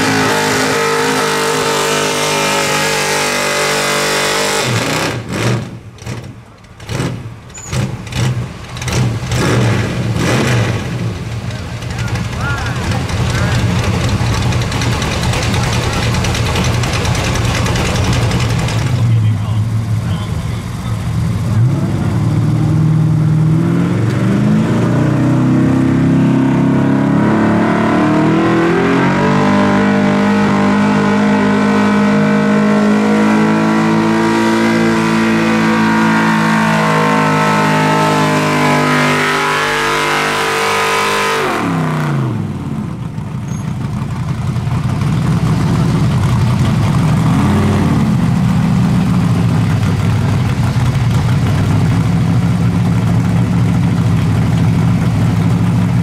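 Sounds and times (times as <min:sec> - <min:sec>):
truck engine running under load: 0:05.2 - 0:23.4, 0:42.3 - 0:56.0.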